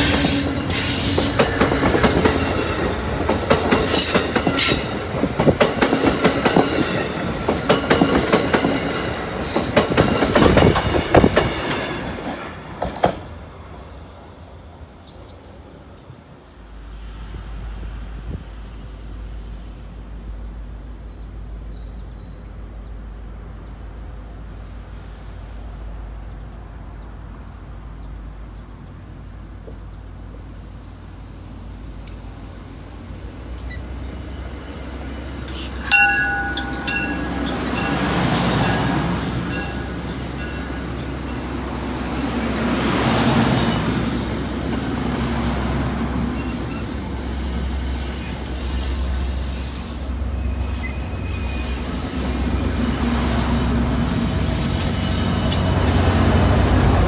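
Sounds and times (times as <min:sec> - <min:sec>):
train wheels squealing: 0:00.0 - 0:05.1, 0:19.4 - 0:23.5, 0:33.5 - 0:42.0, 0:43.0 - 0:45.5, 0:46.1 - 0:57.0
train rumbling: 0:00.0 - 0:57.0.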